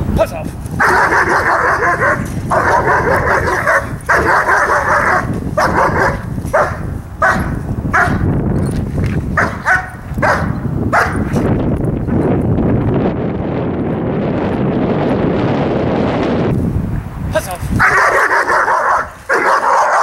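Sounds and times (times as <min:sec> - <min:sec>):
wind rumble on microphone: 0:00.0 - 0:20.0
dog barking: 0:00.8 - 0:08.2, 0:09.4 - 0:11.3, 0:17.8 - 0:20.0.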